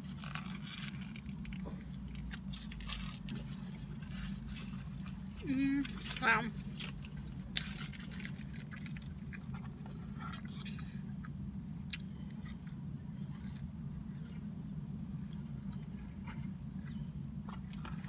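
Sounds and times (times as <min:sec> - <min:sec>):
steady low hum: 0:00.0 - 0:18.0
person chewing: 0:00.1 - 0:18.0.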